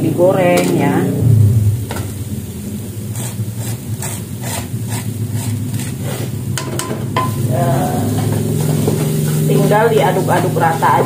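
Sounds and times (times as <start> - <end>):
food sizzling: 0.0 - 11.0
spatula scraping wire strainer: 3.1 - 6.3.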